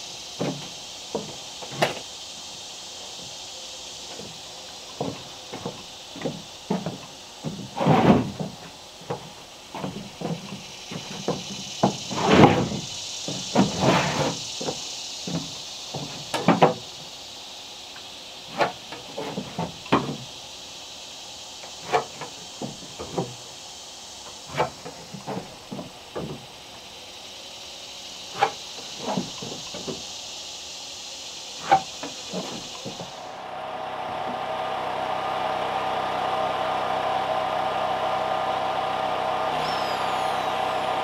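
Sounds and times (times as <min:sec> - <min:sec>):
boots on wooden deck: 0:00.4 - 0:02.1, 0:04.1 - 0:17.1, 0:18.5 - 0:20.3, 0:21.7 - 0:23.5, 0:24.3 - 0:26.6, 0:28.4 - 0:30.2, 0:31.6 - 0:33.2
wooden board bumping: 0:05.0 - 0:16.9, 0:24.5 - 0:26.5.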